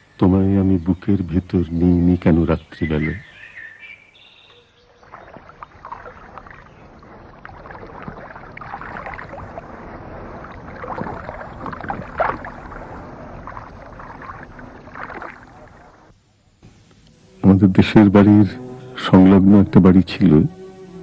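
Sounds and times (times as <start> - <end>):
water splashing and lapping: 4.9 - 16.1.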